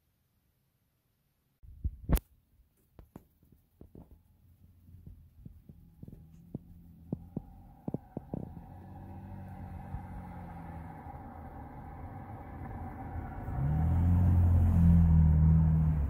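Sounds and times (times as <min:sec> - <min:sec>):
car rumble from inside cabin: 0:04.2 - 0:16.0.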